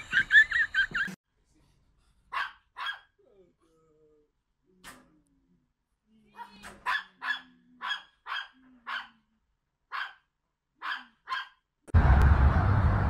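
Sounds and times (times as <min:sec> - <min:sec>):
dog barking excitedly: 0:02.3 - 0:03.2, 0:06.4 - 0:09.2, 0:09.9 - 0:11.6.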